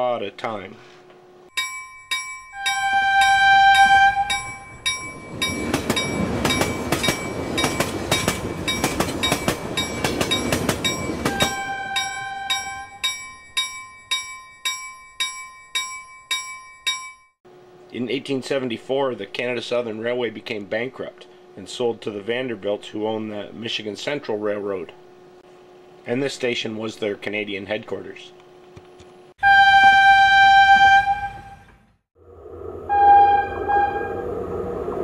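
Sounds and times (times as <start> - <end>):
level-crossing bell ringing: 1.5 - 17.4
train horn: 2.6 - 4.6, 11.3 - 12.9, 29.4 - 31.8, 32.8 - 34.5
train passing with clattering wheels: 2.6 - 13.8.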